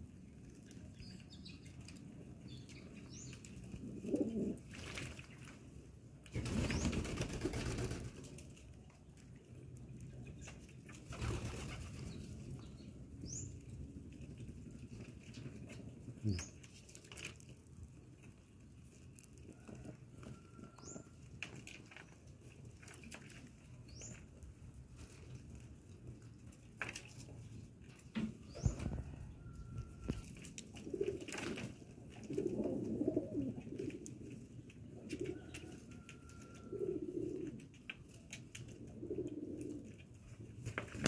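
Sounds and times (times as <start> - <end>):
pigeons flapping and splashing: 3.3 - 8.8, 10.3 - 12.6, 16.6 - 17.5, 30.0 - 33.0, 37.3 - 41.0.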